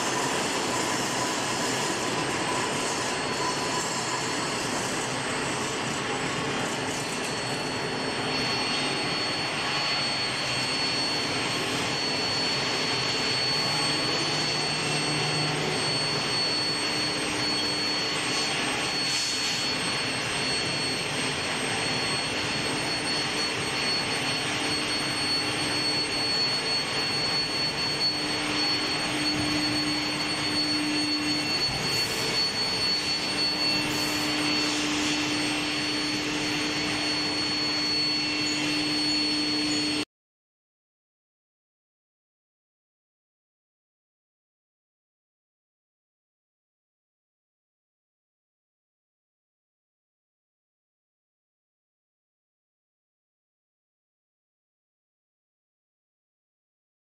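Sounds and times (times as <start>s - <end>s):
high whine: 0.0s - 40.1s.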